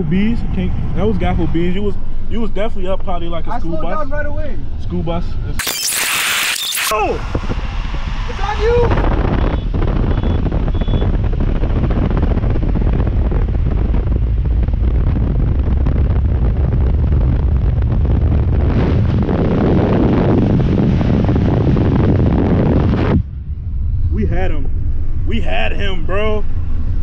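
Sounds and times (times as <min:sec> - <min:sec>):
car road and engine noise: 0:00.0 - 0:27.0
wind buffeting microphone: 0:07.1 - 0:27.0.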